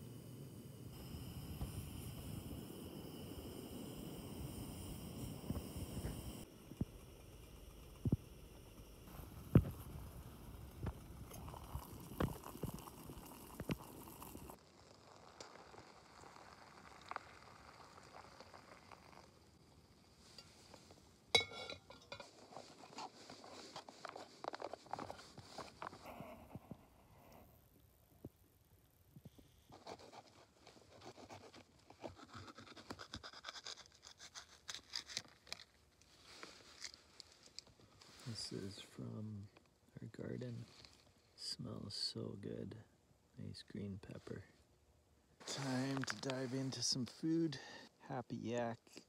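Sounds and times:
water trickling while poured: 10.4s - 19.4s
metal pot lid clinking: 21.4s - 22.3s.

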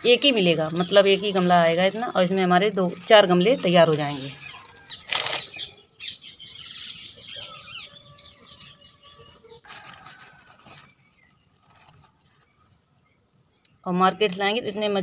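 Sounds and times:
birds chirping: 0.0s - 10.1s.

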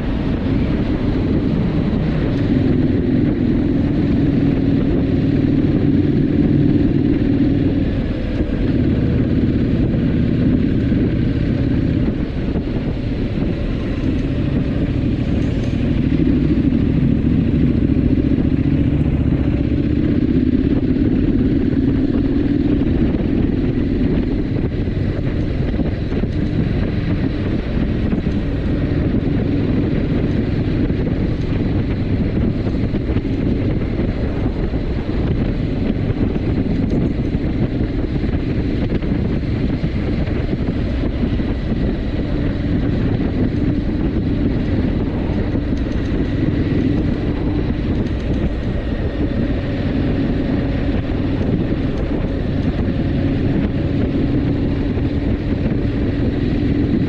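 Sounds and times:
motorcycle engine cruising: 0.0s - 57.0s
road noise: 0.0s - 57.0s
wind rush: 0.0s - 57.0s.

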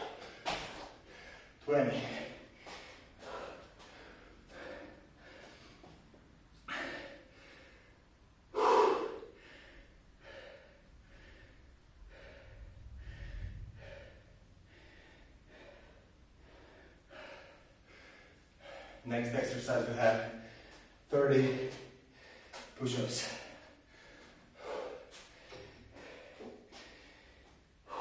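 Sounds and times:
man panting: 0.0s - 28.0s
gasping breaths: 6.6s - 19.0s, 20.4s - 28.0s.

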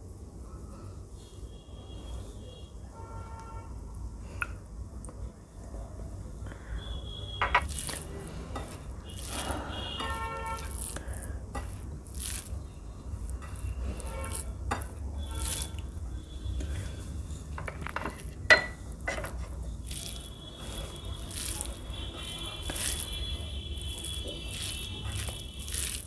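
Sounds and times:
hands squishing and patting rice: 7.7s - 15.9s, 19.4s - 26.0s.

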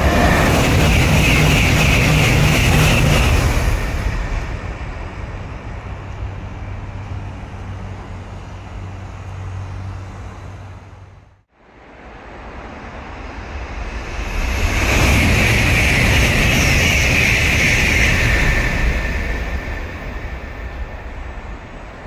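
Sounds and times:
high-speed train rushing past: 0.0s - 22.0s
train pulling away rumbling: 0.0s - 22.0s.

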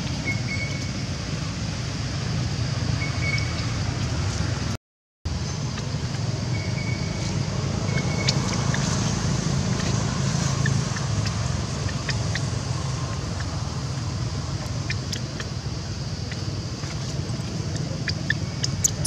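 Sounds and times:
low outdoor rumble: 0.0s - 19.0s
faint high squeaks and ticks: 16.3s - 19.0s.

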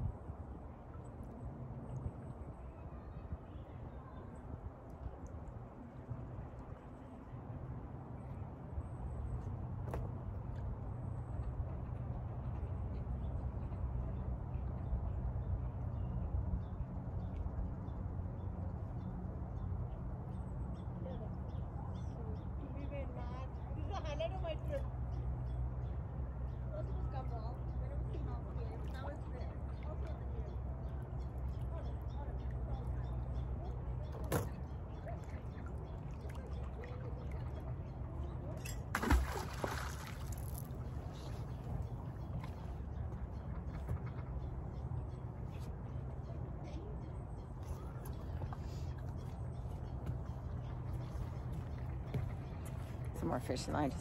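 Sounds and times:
magnet splashing into water: 38.7s - 40.7s
spattering water: 39.0s - 40.8s.

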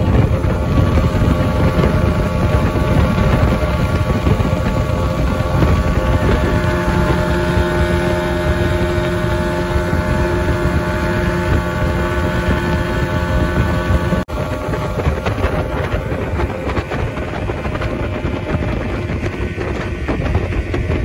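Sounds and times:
outboard motor running: 0.0s - 21.0s
wind buffeting microphone: 0.0s - 21.0s.

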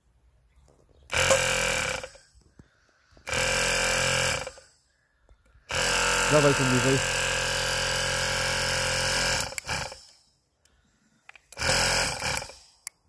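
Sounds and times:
electric compressor running: 1.1s - 2.5s, 3.2s - 4.7s, 5.6s - 10.3s, 11.5s - 12.9s.

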